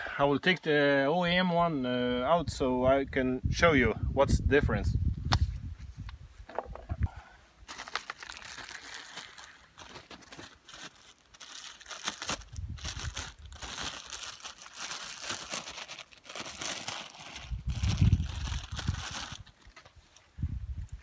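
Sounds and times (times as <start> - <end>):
plastic bag crinkling: 7.7 - 19.7
low rumbles: 17.4 - 19.4.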